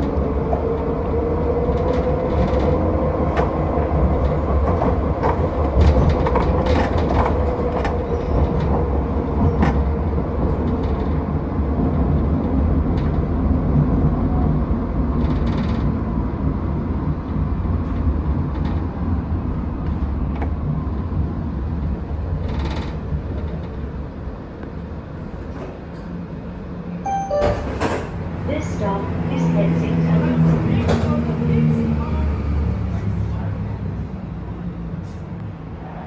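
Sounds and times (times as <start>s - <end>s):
tram rumbling on rails: 0.0s - 36.0s.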